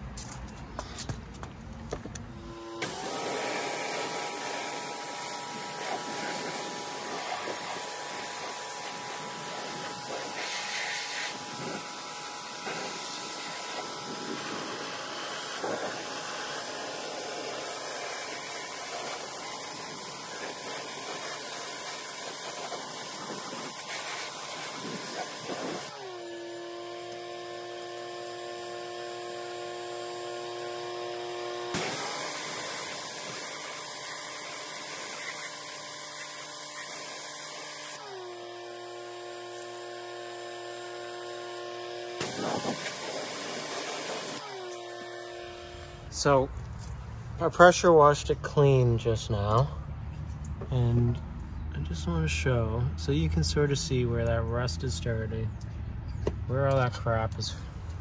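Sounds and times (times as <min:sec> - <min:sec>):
pressure washer motor whine: 0:02.3 - 0:47.7
water jet hissing: 0:02.8 - 0:26.0, 0:31.7 - 0:38.0, 0:42.2 - 0:44.5.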